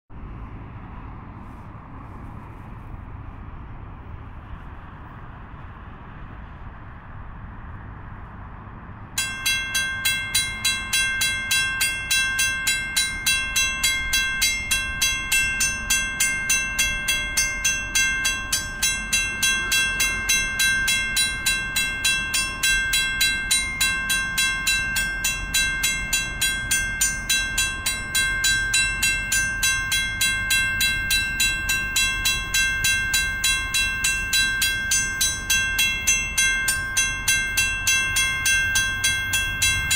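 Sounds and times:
low background rumble: 0:00.1 - 0:39.9
level crossing warning bell: 0:09.2 - 0:39.9.

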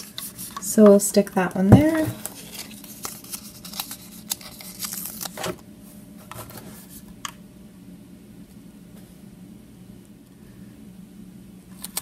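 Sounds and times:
paper sticker sheet rustling: 0:00.0 - 0:05.6.

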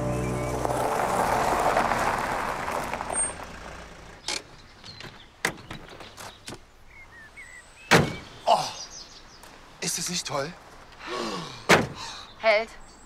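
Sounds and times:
car tyres on gravel: 0:00.0 - 0:08.4.

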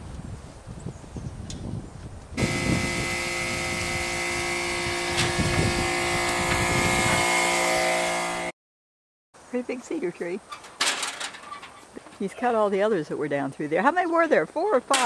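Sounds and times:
small engine running steadily: 0:02.4 - 0:08.5.

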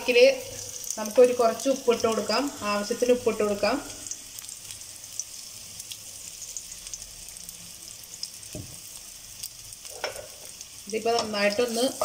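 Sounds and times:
garlic sizzling in oil: 0:00.0 - 0:12.0
soft knock: 0:08.5 - 0:08.8.

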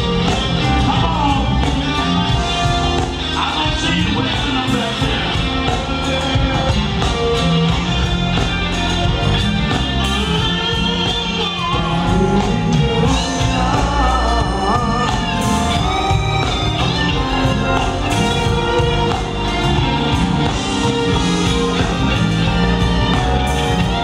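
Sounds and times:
soul band playing: 0:00.0 - 0:24.0
man singing: 0:00.2 - 0:02.6, 0:03.3 - 0:06.7, 0:11.7 - 0:19.6.

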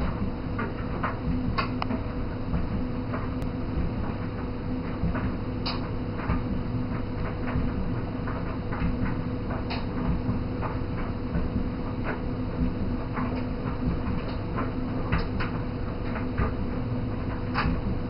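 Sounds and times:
faint irregular clicks: 0:08.4 - 0:11.2.

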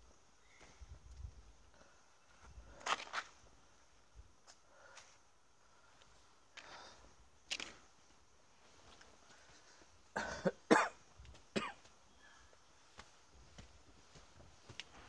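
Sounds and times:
person coughing: 0:10.2 - 0:11.0, 0:11.6 - 0:11.9.

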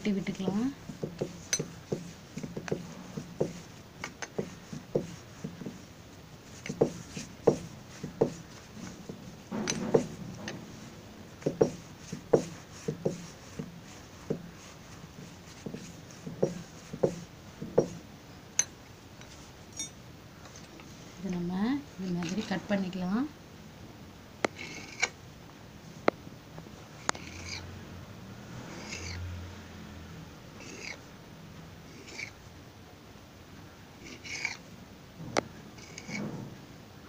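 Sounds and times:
hands slapping dough on stone: 0:11.4 - 0:14.6.

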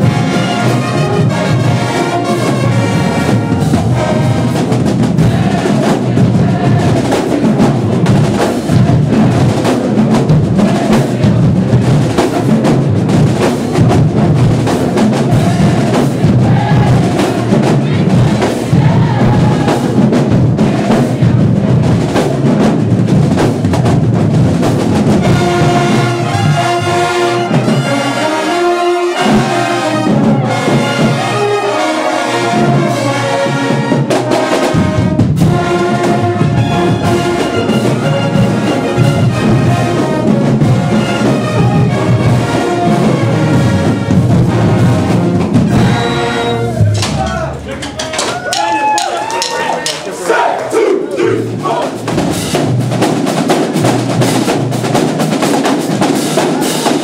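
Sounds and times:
brass held chords: 0:00.0 - 0:22.0, 0:25.0 - 0:47.7
marching band drums: 0:00.0 - 0:57.0.

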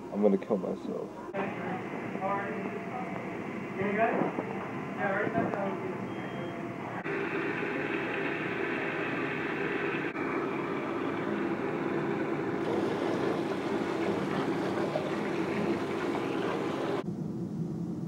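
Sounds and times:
water running into a sink: 0:07.0 - 0:17.0.

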